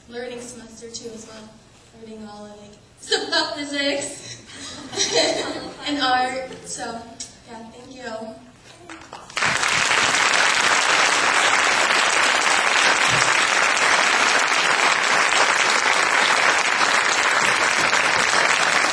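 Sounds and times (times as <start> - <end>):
audience applauding: 8.9 - 18.9.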